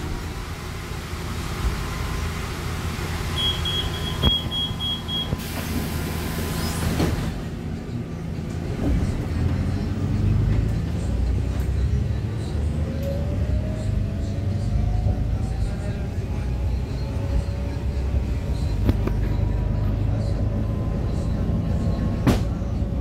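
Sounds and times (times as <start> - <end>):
diesel engine droning: 0.0 - 23.0
high beeps: 3.4 - 5.3.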